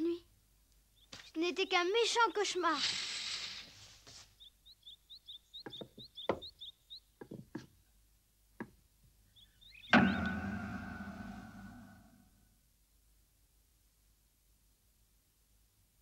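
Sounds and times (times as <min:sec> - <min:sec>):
small birds chirping: 0:00.0 - 0:10.3
clogs on wooden boards: 0:07.2 - 0:07.9
loud ringing chord: 0:10.0 - 0:12.1.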